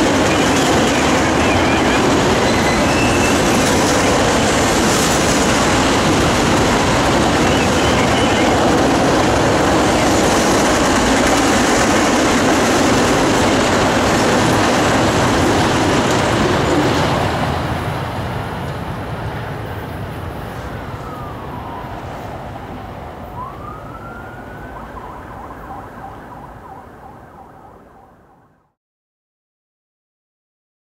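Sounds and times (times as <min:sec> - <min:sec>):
freight train rolling on steel wheels: 0:00.0 - 0:23.2
faint siren wailing: 0:20.8 - 0:28.7.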